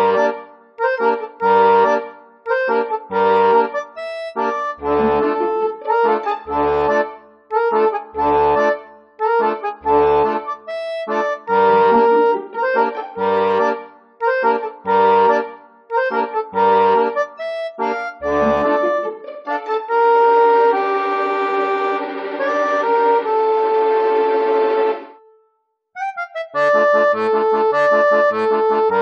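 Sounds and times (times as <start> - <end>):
background music with chords: 0.0 - 25.4.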